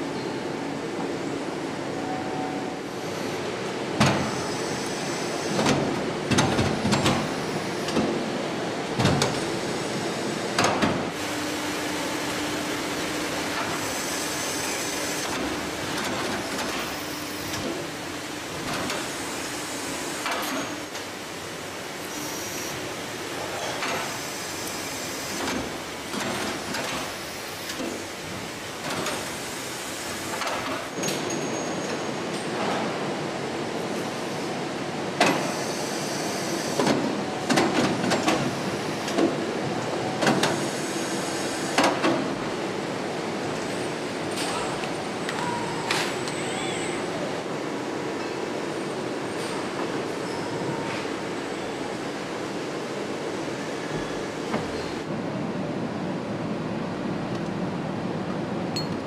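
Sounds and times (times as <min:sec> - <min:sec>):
steady machine hum: 0:09.5 - 0:23.4.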